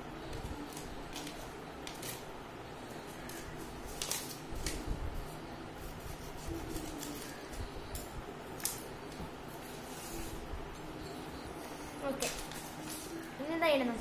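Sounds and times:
scissors snipping paper: 0:03.1 - 0:04.8, 0:06.1 - 0:08.0.

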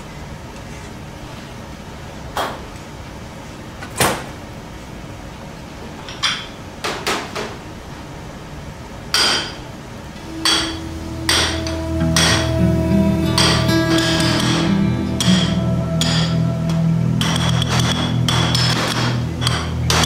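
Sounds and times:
background music: 0:10.2 - 0:20.0.

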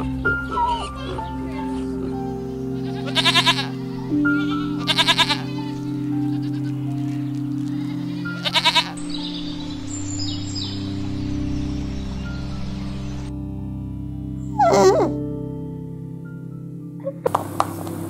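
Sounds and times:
ambient synth music: 0:00.0 - 0:18.0
young goat bleating: 0:02.8 - 0:05.7, 0:06.3 - 0:06.8, 0:07.7 - 0:09.0.

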